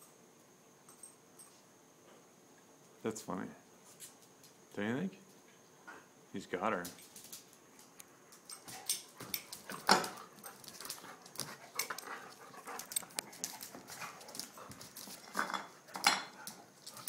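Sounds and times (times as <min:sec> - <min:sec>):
claws on concrete floor: 0:06.8 - 0:17.0
dogs play-wrestling: 0:08.4 - 0:17.0.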